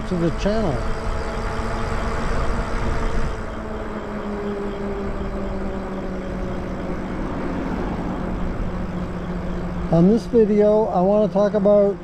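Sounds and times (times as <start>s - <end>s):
electric motor whine: 0.0s - 12.0s
wind rush: 0.7s - 9.9s.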